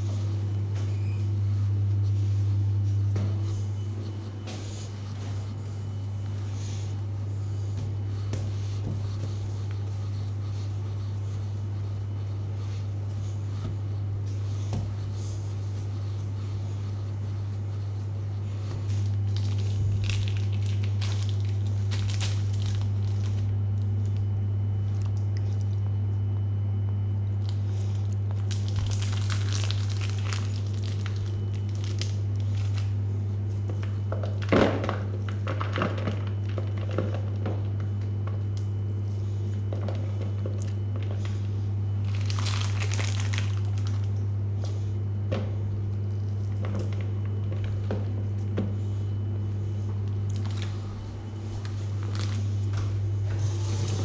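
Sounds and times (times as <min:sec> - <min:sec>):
steady low hum: 0:00.0 - 0:54.0
packaging crinkling: 0:18.8 - 0:24.3, 0:27.4 - 0:33.0, 0:42.0 - 0:44.2, 0:50.2 - 0:52.8.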